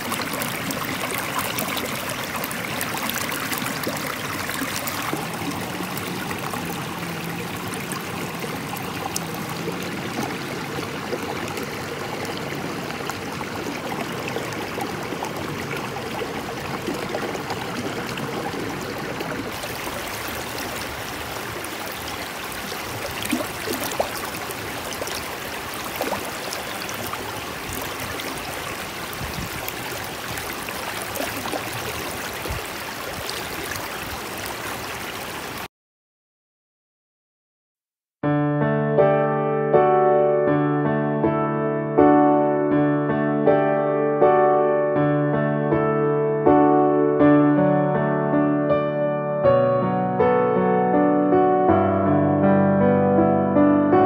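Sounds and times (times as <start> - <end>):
stream rushing and burbling: 0.0 - 35.7.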